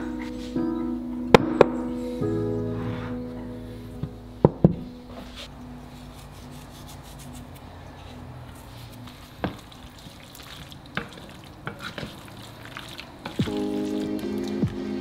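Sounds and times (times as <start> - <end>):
wet scraping: 5.2 - 14.8
spoon stirring thick stew: 9.5 - 14.6.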